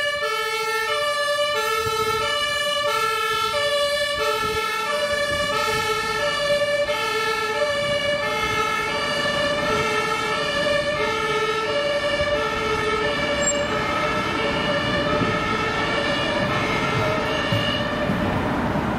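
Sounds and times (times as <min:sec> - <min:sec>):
ambulance two-tone siren: 0:00.0 - 0:18.5
traffic noise: 0:00.0 - 0:18.9.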